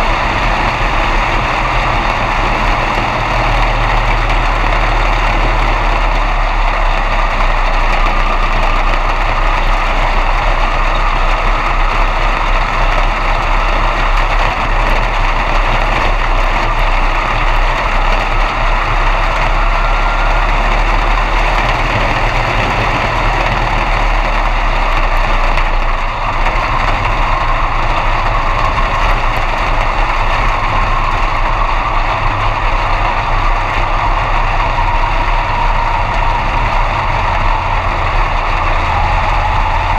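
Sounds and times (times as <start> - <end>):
race car engine at low revs: 0.0 - 39.9.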